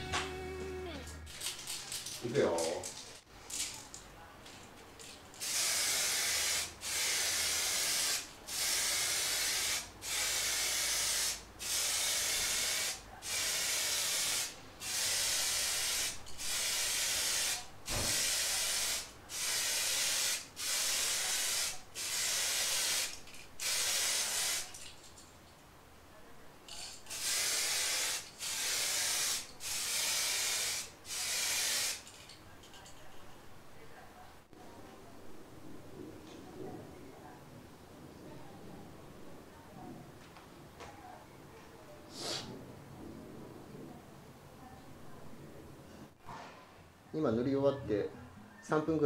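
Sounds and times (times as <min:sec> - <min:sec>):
aerosol can spraying: 0:05.4 - 0:24.7, 0:27.1 - 0:32.0.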